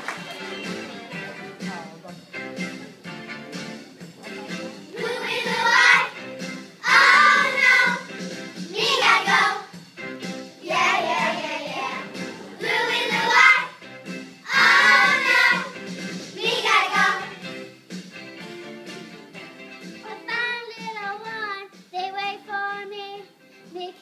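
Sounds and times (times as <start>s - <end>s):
instrumental accompaniment: 0.0s - 21.9s
children singing: 5.0s - 6.1s, 6.8s - 8.1s, 10.6s - 13.7s, 14.5s - 15.7s.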